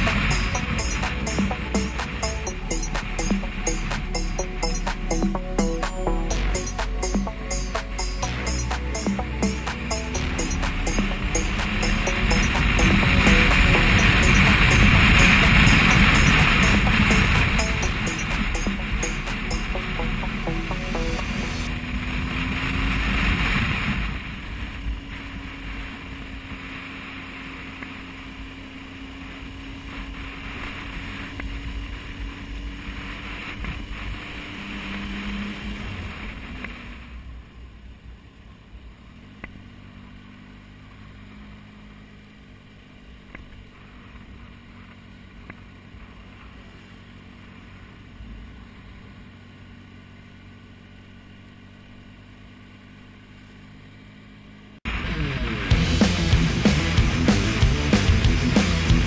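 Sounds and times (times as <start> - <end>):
motorcycle engine running: 49.0 - 59.0.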